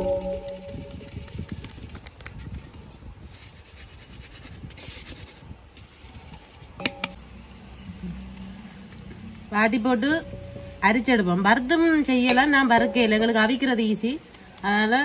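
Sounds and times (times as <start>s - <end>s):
flour rubbed through wire sieve: 2.8s - 15.0s
metallic clink: 6.8s - 7.2s.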